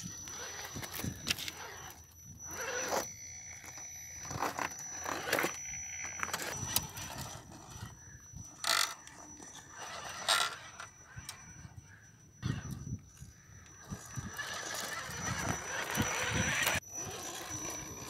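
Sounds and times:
toy car scraping over rock: 0:00.0 - 0:11.4, 0:13.7 - 0:18.0
thin high motor whine: 0:00.0 - 0:18.0.

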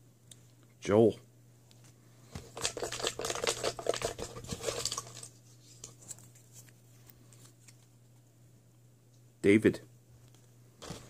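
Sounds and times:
paper crinkling: 0:02.4 - 0:07.9.

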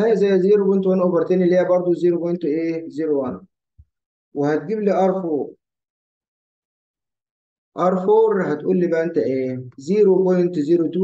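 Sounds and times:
man speaking: 0:00.0 - 0:03.5, 0:04.4 - 0:05.6, 0:07.8 - 0:11.0.

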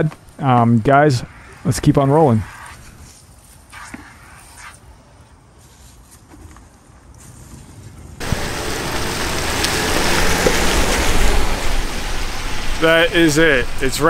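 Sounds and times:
brush scrubbing window glass: 0:01.3 - 0:04.9
loud steady rain: 0:08.2 - 0:14.0.

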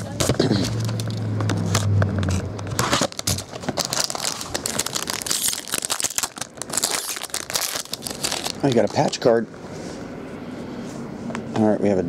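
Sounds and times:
cardboard scraping and rustling: 0:00.0 - 0:09.2
plastic wrap crinkling: 0:02.2 - 0:09.4.

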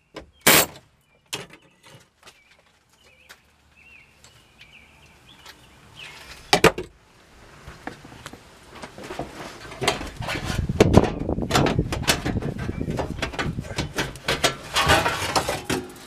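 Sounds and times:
sharp metal knocks: 0:00.4 - 0:00.8
metal panel scraping and thumping: 0:08.8 - 0:16.0.

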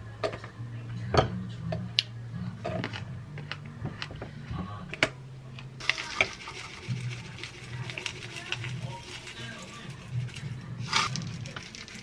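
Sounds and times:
granola pouring into glass mug: 0:05.8 - 0:12.0.

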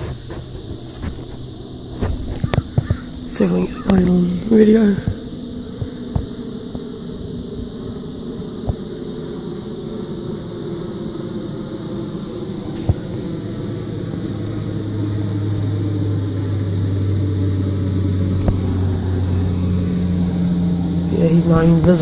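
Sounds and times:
engine drone: 0:00.0 - 0:22.0.

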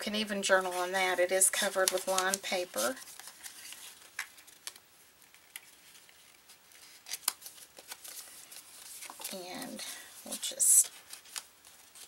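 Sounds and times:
paper rustling and clicking: 0:01.6 - 0:09.4, 0:10.3 - 0:12.0.

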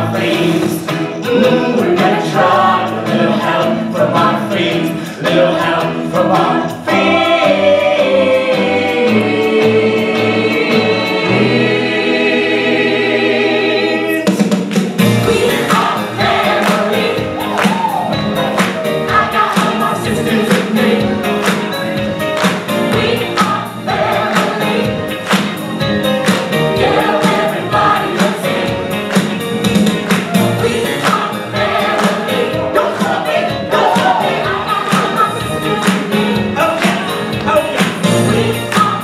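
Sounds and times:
group singing: 0:00.0 - 0:39.0
musical accompaniment with beat: 0:00.0 - 0:39.0.

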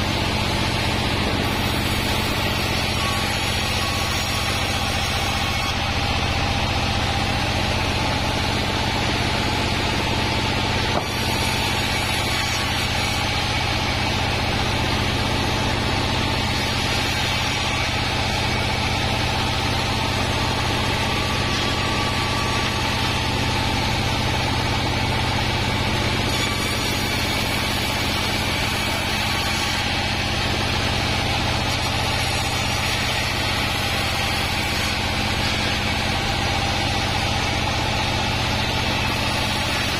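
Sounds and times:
band saw cutting timber: 0:00.0 - 0:39.9
diesel engine drone: 0:00.0 - 0:39.9.

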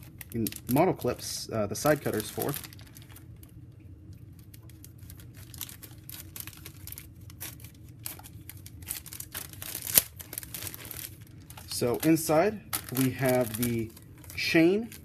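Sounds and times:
plastic bag crinkling: 0:00.0 - 0:03.6, 0:04.2 - 0:15.0.

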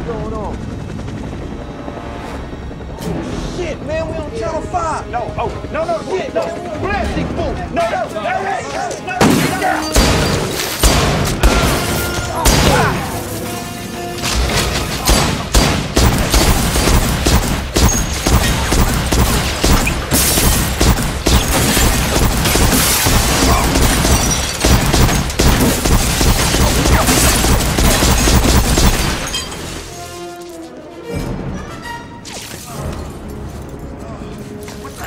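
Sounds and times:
action music score: 0:00.0 - 0:35.0
rapid pistol gunfire: 0:10.8 - 0:11.8, 0:15.0 - 0:29.2.

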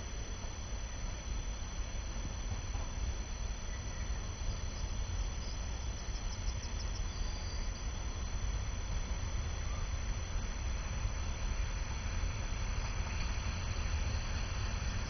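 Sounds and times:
insects chirping: 0:00.0 - 0:11.8.

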